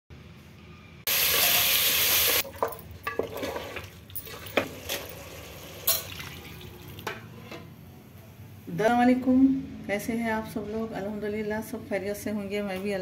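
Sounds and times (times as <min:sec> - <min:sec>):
food sizzling in hot oil: 0:01.1 - 0:02.4.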